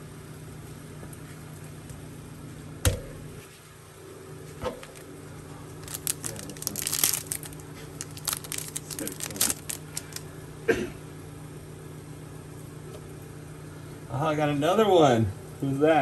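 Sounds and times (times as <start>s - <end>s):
steady low hum: 0.0s - 16.0s
foil wrapper being torn open: 5.8s - 10.3s.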